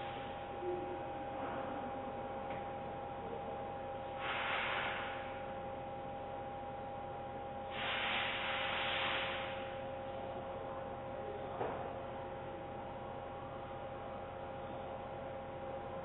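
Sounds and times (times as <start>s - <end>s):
static hiss bursts: 7.7s - 9.5s.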